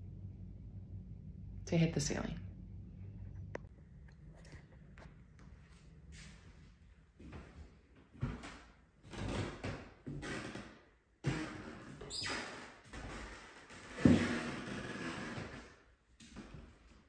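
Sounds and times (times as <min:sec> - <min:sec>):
floor creaking: 0:08.2 - 0:15.8.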